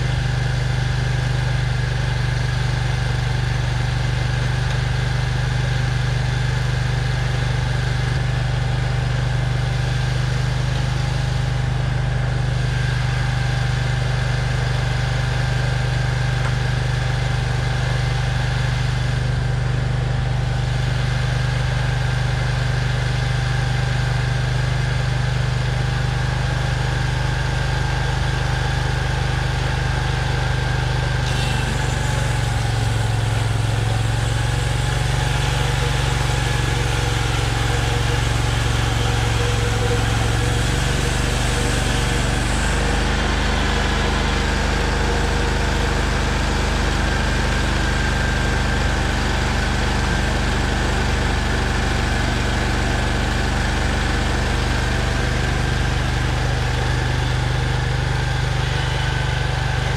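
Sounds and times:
sawmill engine running: 0:00.0 - 0:59.9.

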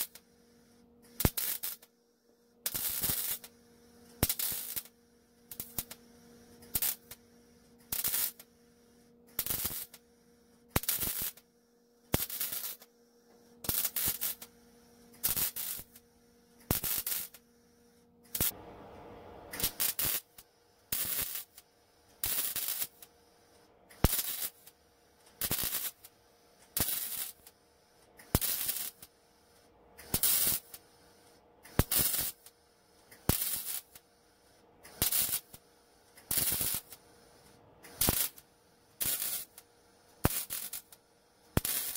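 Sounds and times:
welder arc crackling: 0:01.2 - 0:01.9, 0:02.6 - 0:03.5, 0:04.2 - 0:04.9, 0:05.5 - 0:06.0, 0:06.6 - 0:07.2, 0:07.8 - 0:08.5, 0:09.4 - 0:10.0, 0:10.7 - 0:11.4, 0:12.1 - 0:12.9, 0:13.6 - 0:14.6, 0:15.2 - 0:16.0, 0:16.6 - 0:17.4, 0:18.2 - 0:23.1, 0:23.9 - 0:26.1, 0:26.7 - 0:27.5, 0:28.2 - 0:29.1, 0:30.0 - 0:30.8, 0:31.7 - 0:32.5, 0:33.1 - 0:34.0, 0:34.8 - 0:35.6, 0:36.2 - 0:37.0, 0:37.8 - 0:39.6, 0:40.2 - 0:41.9.

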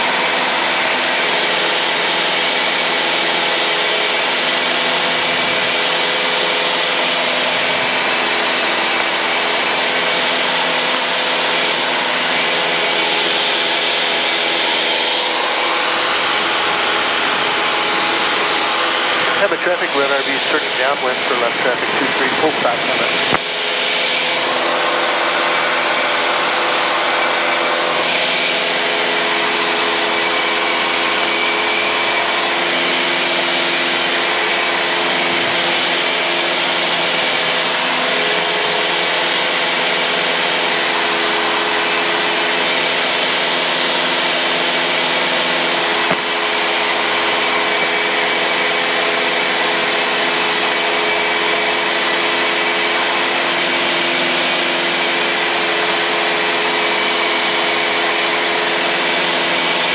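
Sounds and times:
airplane engine and propeller drone: 0:00.0 - 0:59.9
intercom hiss: 0:19.2 - 0:23.5.

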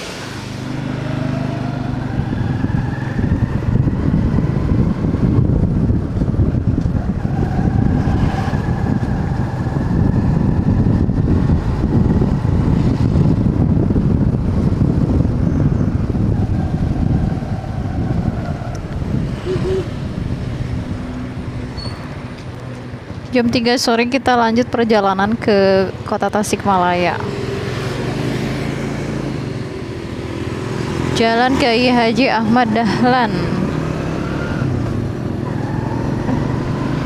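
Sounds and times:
wind rush over microphone: 0:00.0 - 0:37.0
motorcycle engine: 0:27.0 - 0:37.0.

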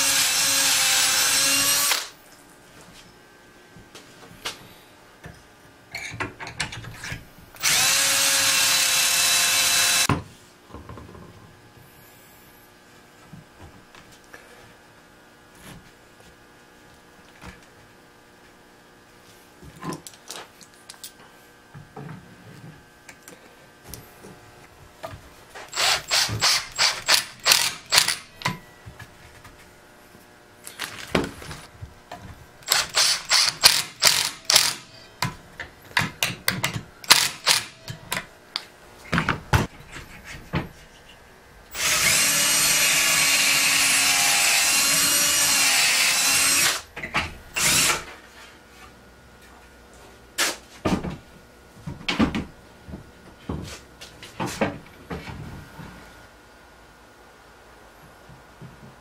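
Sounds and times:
impact driver bursts: 0:00.0 - 0:02.2, 0:07.6 - 0:10.1, 0:25.7 - 0:28.3, 0:32.6 - 0:34.9, 0:37.0 - 0:37.9
steady machine noise: 0:25.7 - 0:28.4.

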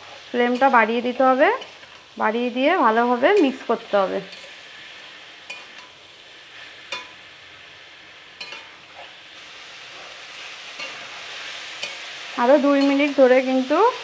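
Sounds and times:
food sizzling in oil: 0:00.0 - 0:14.0
metal spatula scraping pan: 0:03.4 - 0:06.0, 0:08.4 - 0:09.2, 0:09.9 - 0:13.3.

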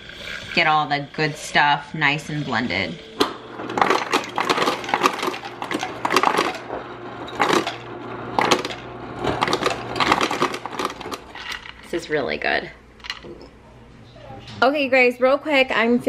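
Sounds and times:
low steady hum: 0:00.0 - 0:16.0
ice cubes clinking on glass: 0:03.7 - 0:06.7, 0:09.4 - 0:11.9.

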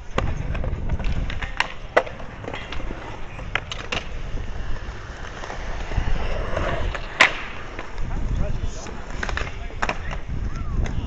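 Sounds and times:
skateboard clacks: 0:00.0 - 0:11.0
skateboard wheels rolling on concrete: 0:00.0 - 0:11.0.

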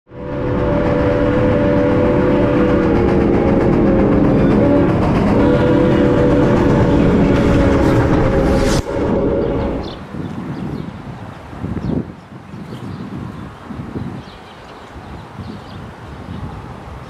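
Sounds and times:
steam locomotive whistle: 0:00.1 - 0:10.0
low rumble of moving train: 0:00.1 - 0:17.0.

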